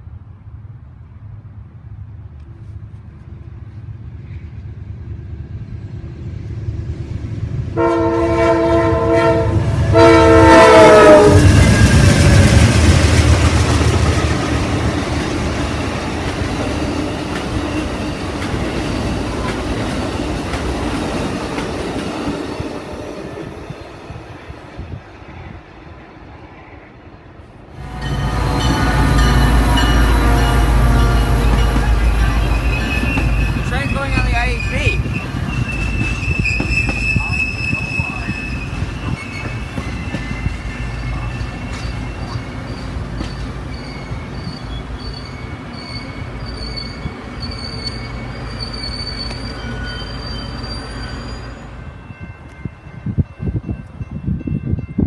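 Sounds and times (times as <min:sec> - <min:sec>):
train rumbling: 0:00.0 - 0:55.0
train horn blasts: 0:07.8 - 0:11.8, 0:27.8 - 0:35.0
train wheels clickety-clack: 0:11.2 - 0:23.6, 0:28.7 - 0:44.5.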